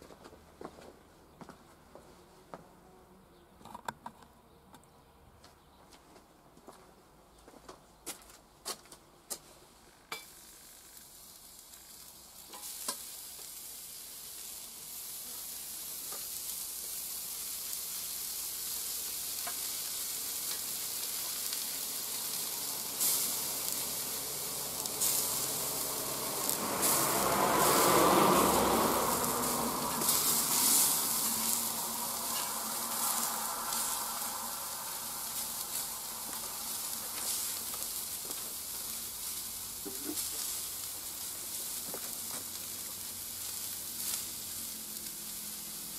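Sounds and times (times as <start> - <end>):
food sizzling on hot plate: 10.1 - 45.9.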